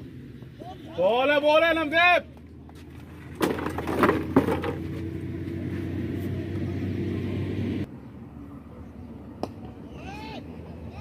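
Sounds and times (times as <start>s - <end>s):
low mechanical hum: 0.0s - 11.0s
outdoor background: 0.0s - 11.0s.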